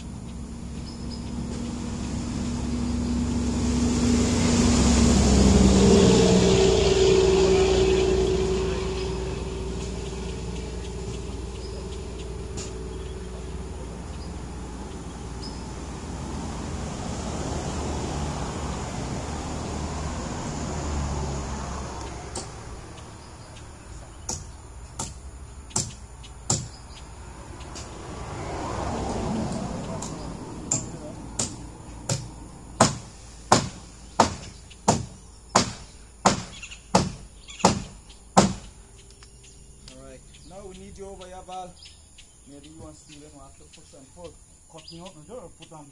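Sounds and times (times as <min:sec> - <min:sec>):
rushing noise: 0:00.0 - 0:24.2
low engine-like hum: 0:00.0 - 0:45.7
hammer driving nail into wood: 0:30.7 - 0:38.7.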